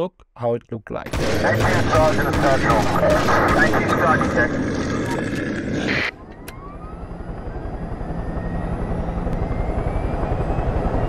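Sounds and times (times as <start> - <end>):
gunfire: 1.1 - 6.1
helicopter rotor chop: 1.1 - 11.0
turbine whine: 1.1 - 11.0.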